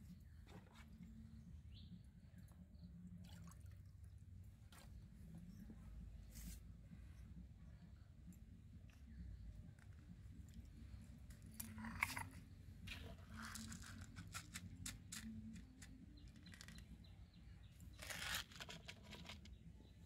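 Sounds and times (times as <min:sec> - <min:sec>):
dried chillies crackling and rustling: 0:11.6 - 0:17.0, 0:17.8 - 0:19.6.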